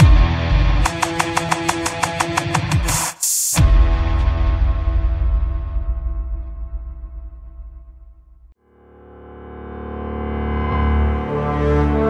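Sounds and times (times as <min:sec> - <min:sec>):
sustained orchestral chords: 0:08.7 - 0:12.0.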